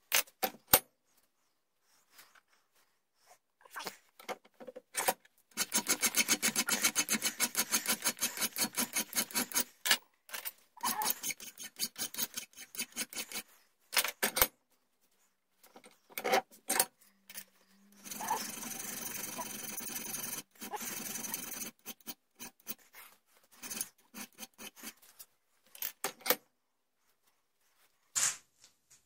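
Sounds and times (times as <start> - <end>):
hand file rasping on metal: 5.6 - 9.7, 10.8 - 13.6, 17.8 - 25.1.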